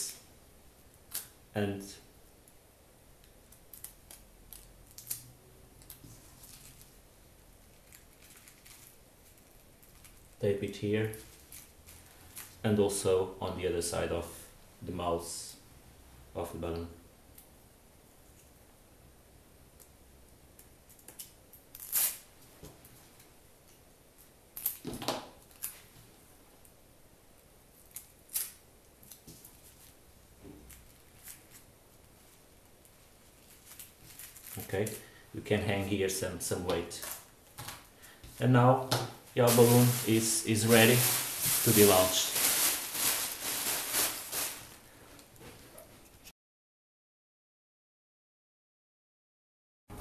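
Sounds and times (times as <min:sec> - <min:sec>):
sticky tape and plastic bag crinkling: 0:03.5 - 0:07.0, 0:07.6 - 0:12.6, 0:20.9 - 0:22.3, 0:27.8 - 0:32.1, 0:33.3 - 0:35.0, 0:36.8 - 0:37.9, 0:39.3 - 0:44.9.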